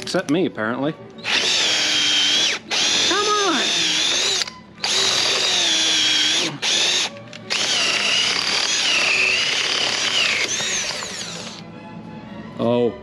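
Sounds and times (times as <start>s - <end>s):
cordless drill whining: 1.2s - 11.6s.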